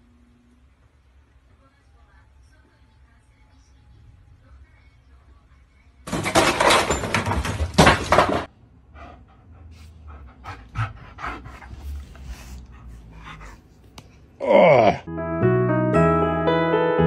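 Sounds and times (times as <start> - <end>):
dog panting: 8.9 - 13.8.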